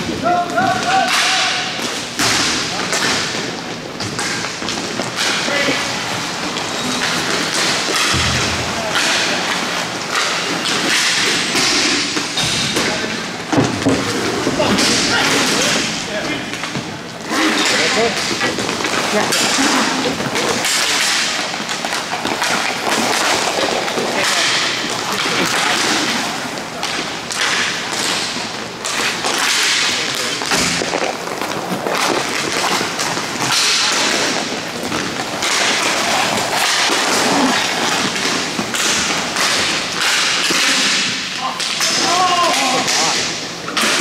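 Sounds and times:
stick and puck clacks: 0.4s - 44.0s
skates scraping on ice: 17.2s - 41.2s.

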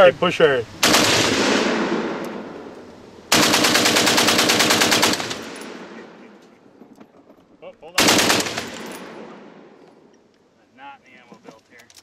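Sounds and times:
machine gun firing: 0.8s - 2.4s, 3.3s - 6.2s, 8.0s - 9.6s
gunfire echo: 0.8s - 2.7s, 3.3s - 6.4s, 8.0s - 9.8s.

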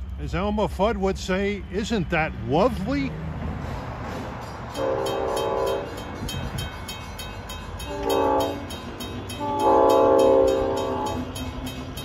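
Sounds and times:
crossing bell dinging rapidly: 4.4s - 12.0s
train air horn blasts: 4.7s - 6.0s, 7.8s - 11.4s.

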